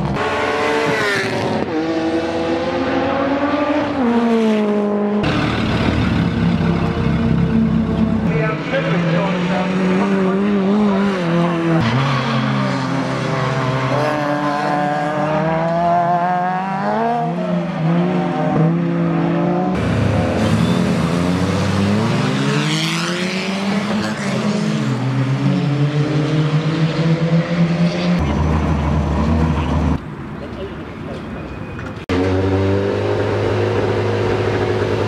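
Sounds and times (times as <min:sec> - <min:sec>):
car engines revving hard: 0:00.0 - 0:30.0, 0:32.0 - 0:35.0.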